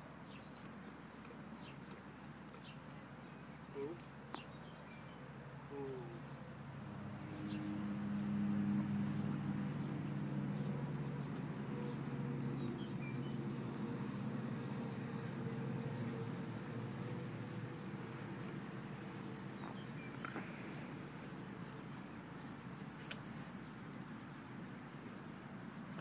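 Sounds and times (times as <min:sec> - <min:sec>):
low engine hum: 0:05.6 - 0:24.0.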